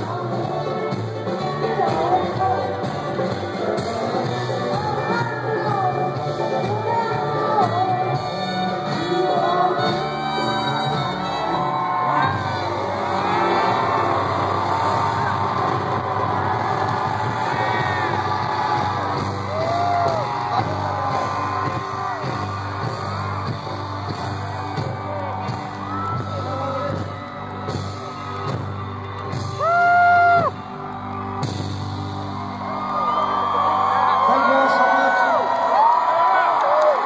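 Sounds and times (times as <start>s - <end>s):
crowd singing along and whooping: 0.0s - 31.4s
live band music through a pa: 0.0s - 34.2s
loud held shout: 29.6s - 30.5s.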